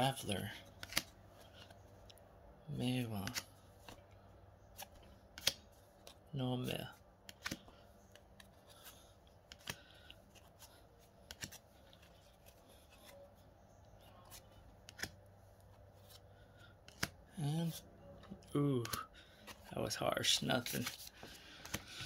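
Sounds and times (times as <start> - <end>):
trading cards being flipped: 0.6 - 2.2, 3.1 - 13.2, 14.0 - 17.2, 18.2 - 22.0
cards clicking against cards: 0.7 - 1.8, 3.1 - 4.0, 4.7 - 6.2, 7.2 - 13.2, 14.3 - 15.2, 16.8 - 17.2, 18.2 - 19.7, 20.3 - 22.0.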